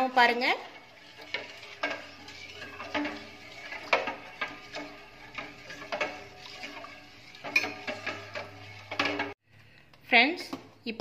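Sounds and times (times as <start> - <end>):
spoon scraping a steel pot: 0.0 - 9.4.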